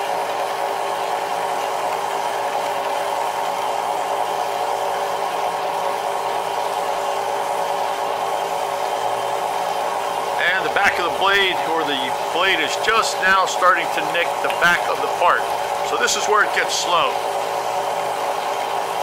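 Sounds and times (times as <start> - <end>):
steady machine hum: 0.0 - 19.0
bandsaw cutting aluminum: 10.4 - 17.2.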